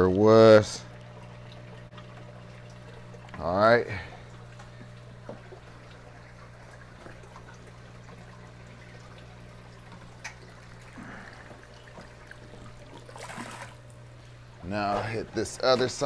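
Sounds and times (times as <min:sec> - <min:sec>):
steady low hum: 0:00.0 - 0:16.0
water trickling through siphon hose: 0:00.0 - 0:16.0.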